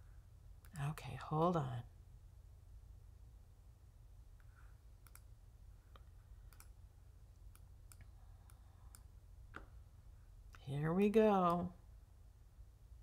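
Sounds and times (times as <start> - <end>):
low steady hum: 0.0 - 13.0
computer clicks: 5.0 - 5.3, 6.0 - 6.8.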